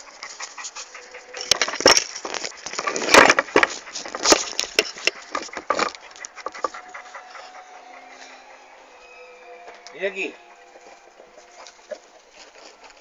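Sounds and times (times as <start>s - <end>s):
sharp knocks and clicks: 1.4s - 6.8s.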